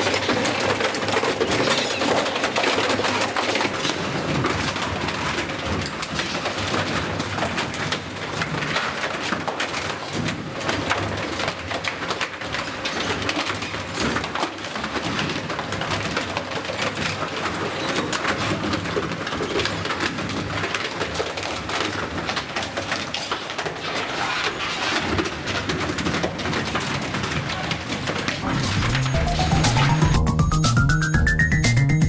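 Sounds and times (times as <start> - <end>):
shredder crushing plastic: 0.0 - 30.4.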